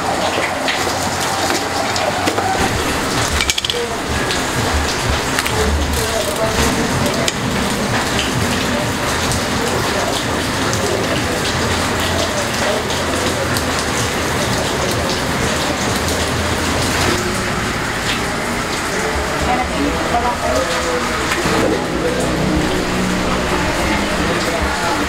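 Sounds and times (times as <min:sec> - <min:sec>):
heavy rain hissing: 0:00.0 - 0:25.0.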